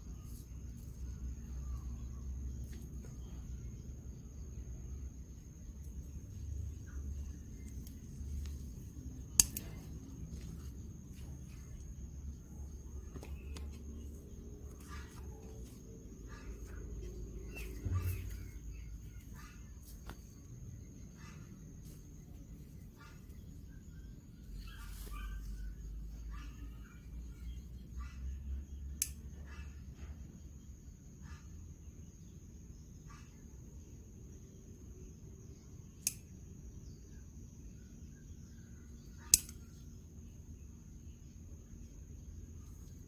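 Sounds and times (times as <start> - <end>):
faint bird chirps: 0.0 - 43.0
sharp click: 9.3 - 9.9, 36.0 - 36.3, 39.3 - 39.7.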